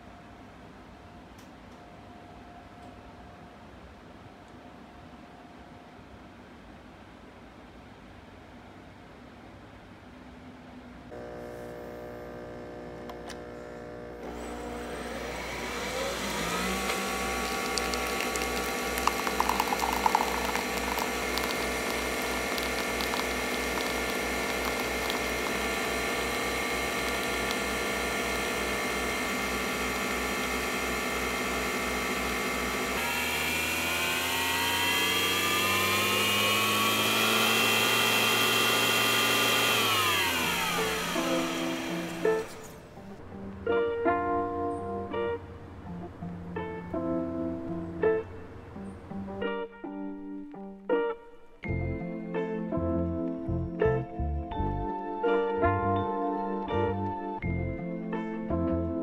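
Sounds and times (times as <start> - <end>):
coffee machine motor whirring: 11.2 - 43.2
coffee pouring: 15.2 - 42.7.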